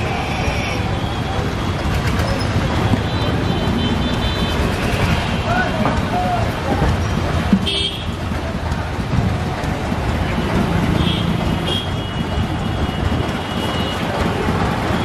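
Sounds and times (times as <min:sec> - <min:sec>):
people talking: 0:00.0 - 0:15.0
traffic rumble: 0:00.0 - 0:15.0.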